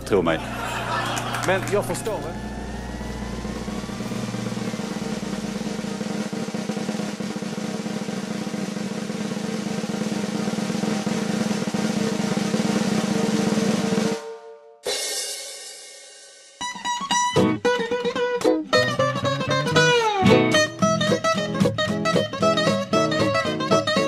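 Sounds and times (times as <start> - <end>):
cymbal crash: 0.4 - 11.7
snare drum roll: 0.4 - 14.2
plucked guitar music: 16.6 - 24.0.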